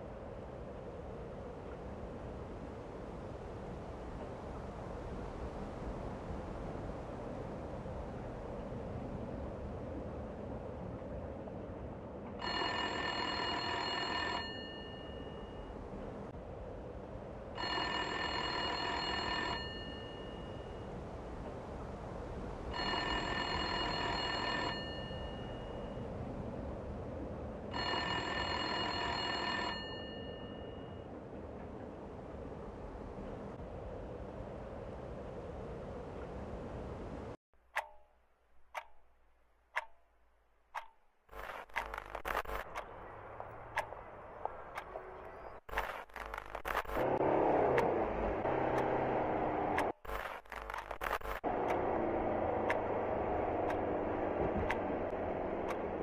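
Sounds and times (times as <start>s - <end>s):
telephone ringing: 12.4s - 15.7s, 17.6s - 20.8s, 22.7s - 26.0s, 27.7s - 31.1s
clock ticking: 37.7s - 39.1s, 39.7s - 43.0s, 43.6s - 45.0s
television static crackling and hiss: 41.3s - 47.2s, 48.5s - 52.2s.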